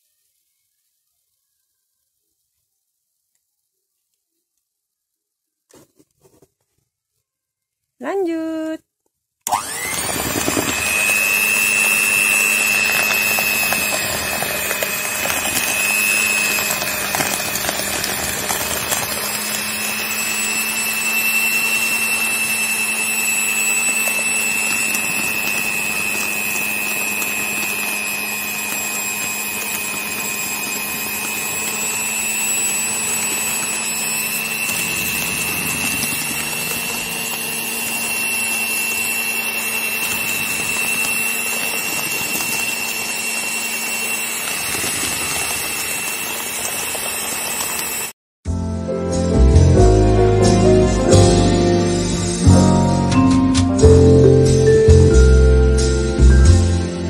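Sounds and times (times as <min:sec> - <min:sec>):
electric hand mixer whining: 0:09.4 - 0:48.2, 0:50.4 - 0:57.0.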